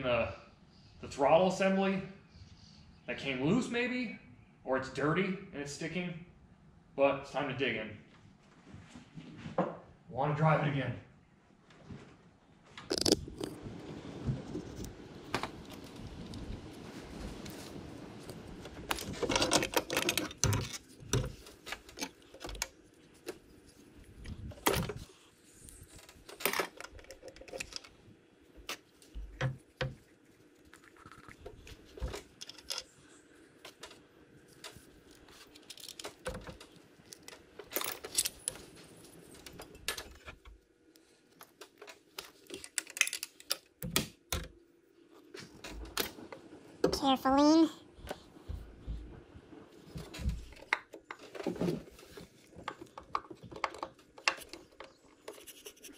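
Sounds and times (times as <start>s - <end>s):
small metal parts clinking: 35.3s - 38.7s, 42.5s - 43.8s.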